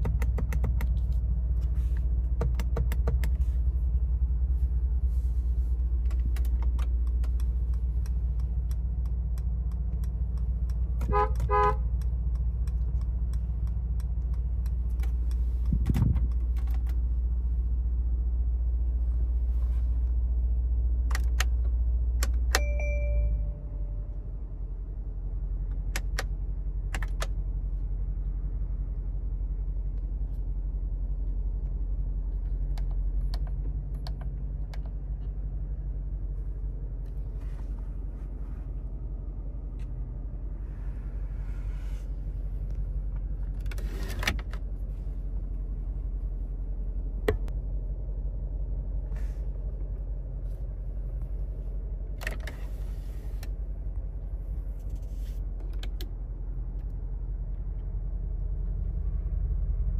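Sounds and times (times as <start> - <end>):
car engine idling: 0.0 - 43.8
clicks: 6.0 - 17.0.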